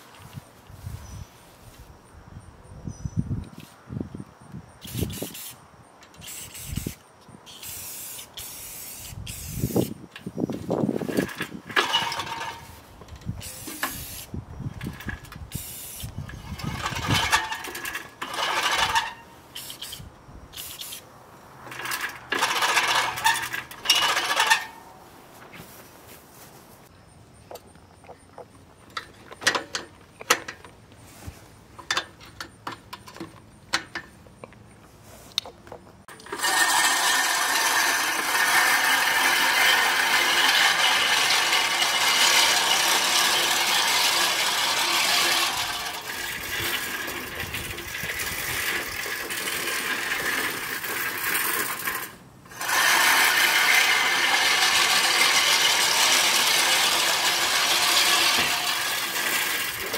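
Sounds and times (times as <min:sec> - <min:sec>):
reel mower whirring through grass: 0:06.2 - 0:21.0, 0:21.6 - 0:24.9, 0:36.1 - 0:59.9.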